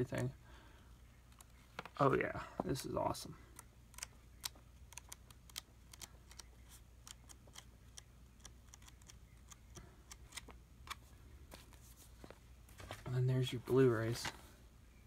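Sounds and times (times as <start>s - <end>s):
low steady hum: 0.0s - 15.0s
book pages turning: 3.6s - 14.5s.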